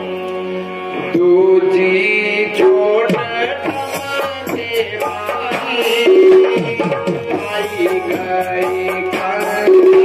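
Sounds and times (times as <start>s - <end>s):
man singing devotional song: 0.0s - 10.0s
tabla strokes: 2.6s - 10.0s.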